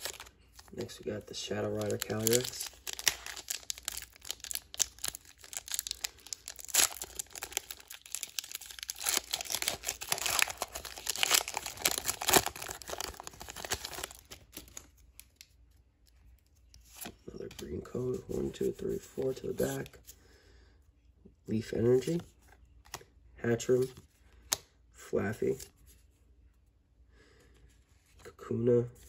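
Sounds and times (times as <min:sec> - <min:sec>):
foil wrapper crinkling and tearing: 0:00.0 - 0:15.5.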